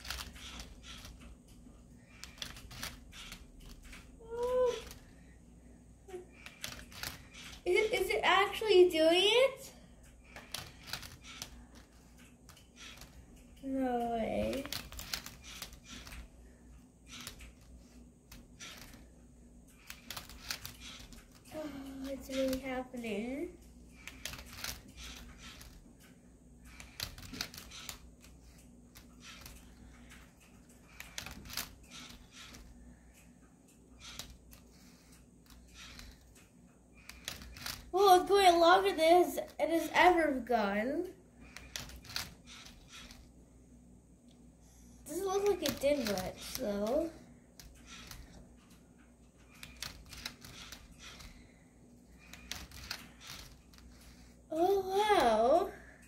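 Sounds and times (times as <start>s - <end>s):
faint motor hum: 0.0s - 56.0s
plastic clicks and clacks: 24.0s - 37.9s, 41.4s - 43.3s, 45.2s - 47.0s, 47.6s - 51.4s, 52.2s - 54.1s.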